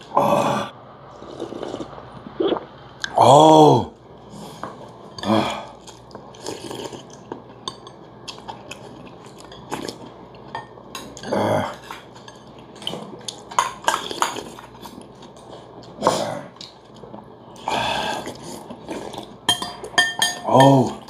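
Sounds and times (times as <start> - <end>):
utensils clinking against bowls: 7.0 - 14.8, 19.5 - 21.0.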